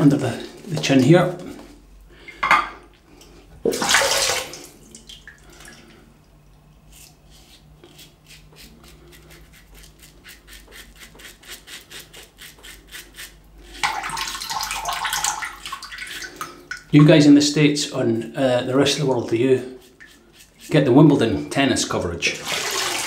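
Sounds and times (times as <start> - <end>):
razor scraping stubble: 6.9 - 13.8, 18.8 - 21.2.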